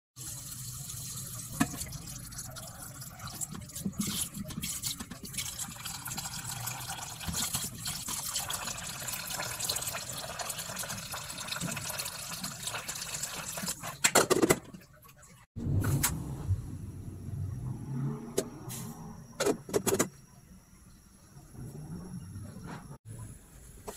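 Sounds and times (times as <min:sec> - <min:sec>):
tap water running into a pot: 0:00.2 - 0:14.1.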